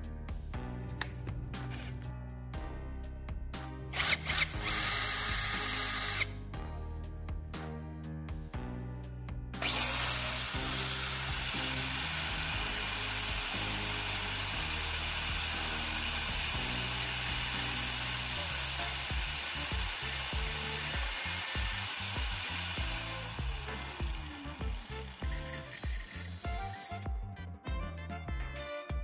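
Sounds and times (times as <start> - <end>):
angle grinder grinding metal: 4.0 - 6.4, 9.6 - 27.2.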